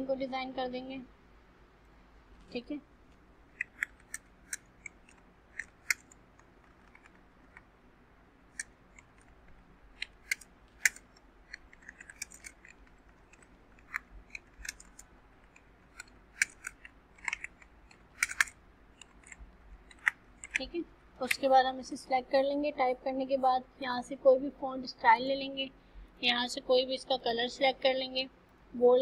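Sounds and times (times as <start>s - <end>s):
keyboard typing clicks: 10.0s - 21.5s.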